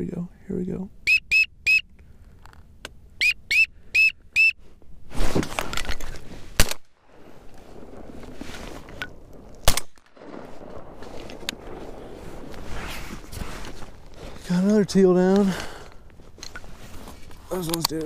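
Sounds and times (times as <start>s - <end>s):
short whistled peeps: 1.1s - 1.9s, 3.2s - 4.6s
shotgun shots: 6.6s - 7.0s, 9.6s - 12.5s.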